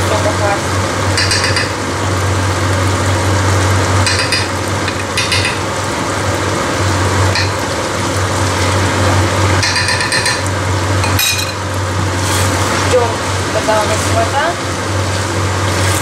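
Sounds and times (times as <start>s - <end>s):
food sizzling in a wok: 0.0s - 16.0s
spoon clinking against pan: 1.2s - 1.8s, 4.1s - 5.6s, 7.4s - 7.6s.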